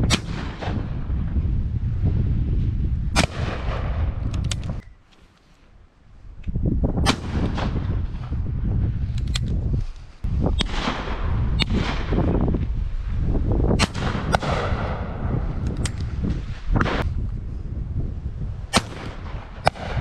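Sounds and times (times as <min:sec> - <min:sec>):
shotgun shots: 0:00.0 - 0:00.9, 0:03.1 - 0:04.2, 0:07.0 - 0:08.0, 0:10.6 - 0:12.3, 0:13.8 - 0:15.4, 0:18.7 - 0:20.0
wind on microphone: 0:00.0 - 0:05.0, 0:05.8 - 0:20.0.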